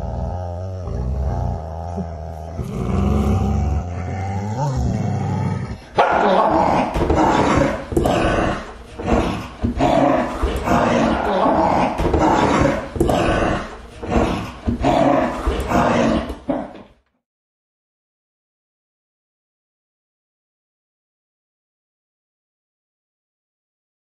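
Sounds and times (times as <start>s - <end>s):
dog growling: 0.0s - 16.8s
dog barking: 6.0s - 6.6s.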